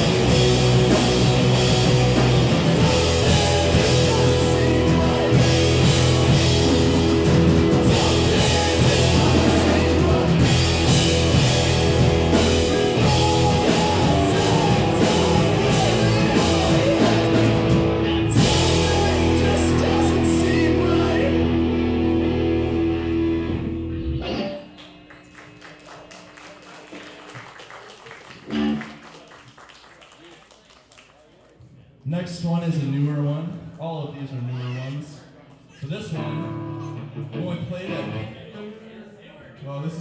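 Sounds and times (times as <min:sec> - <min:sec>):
punk rock band playing loud: 0:00.0 - 0:24.6, 0:28.5 - 0:28.8
distorted electric guitars: 0:00.0 - 0:25.6, 0:28.5 - 0:29.0, 0:36.0 - 0:38.4.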